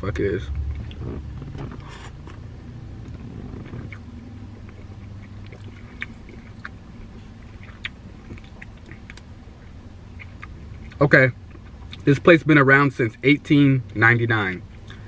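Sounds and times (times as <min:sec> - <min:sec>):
low hum in car cabin: 0:00.0 - 0:15.0
person chewing food: 0:03.5 - 0:12.0.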